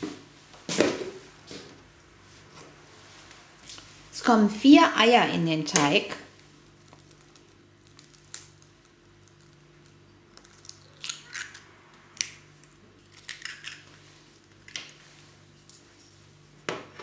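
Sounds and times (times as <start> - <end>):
eggshells cracking: 6.7 - 13.9.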